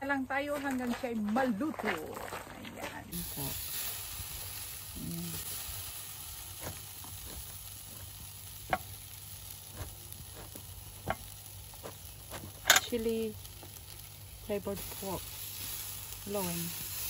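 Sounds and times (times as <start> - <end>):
meat sizzling on a grill: 3.1 - 17.0
sharp pops of grease: 9.7 - 13.9.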